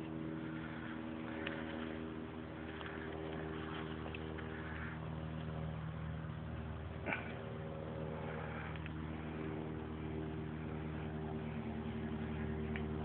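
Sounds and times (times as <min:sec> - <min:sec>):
motor humming: 0:00.0 - 0:13.0
faint clicks: 0:08.7 - 0:09.0.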